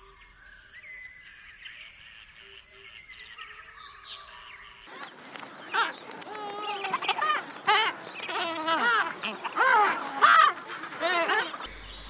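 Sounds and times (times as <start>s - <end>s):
birds chirping and whistling: 0.0s - 4.9s, 11.7s - 12.0s
high insect-like hiss: 0.0s - 4.9s, 11.7s - 12.0s.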